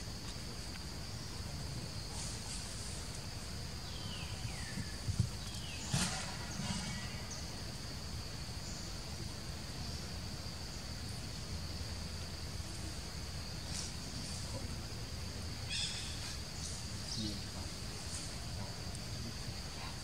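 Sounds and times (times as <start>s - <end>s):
insects droning: 0.0s - 20.0s.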